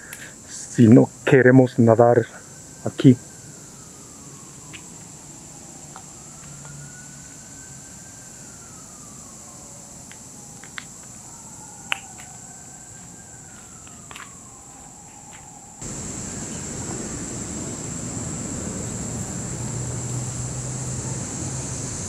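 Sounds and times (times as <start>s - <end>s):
siren wailing: 0.5s - 22.0s.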